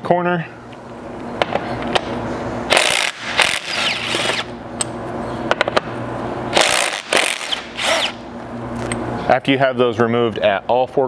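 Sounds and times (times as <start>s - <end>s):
cordless drill running: 2.7s - 4.5s, 6.6s - 8.2s
short noisy drill bursts: 2.7s - 4.5s, 6.5s - 8.2s.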